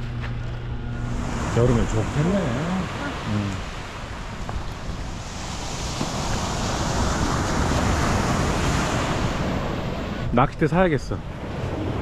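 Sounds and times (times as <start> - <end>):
surf breaking on beach: 1.0 - 10.6.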